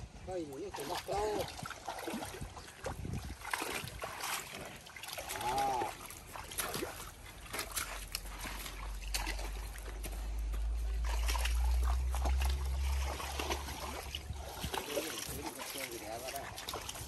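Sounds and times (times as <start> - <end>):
cattle splashing in water: 0.5 - 17.0
low rumble: 7.0 - 14.8.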